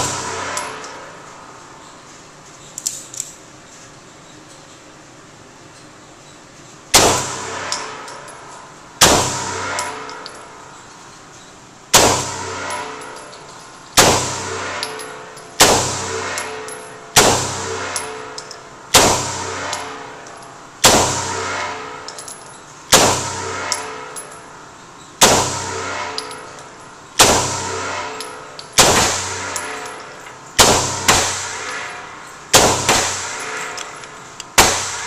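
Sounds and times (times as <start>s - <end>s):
pistol shots echoing indoors: 14.0s - 20.2s, 27.2s - 30.0s, 30.6s - 34.0s, 34.6s - 35.0s
light metallic clinks: 22.0s - 22.8s, 29.5s - 30.6s, 33.4s - 34.5s.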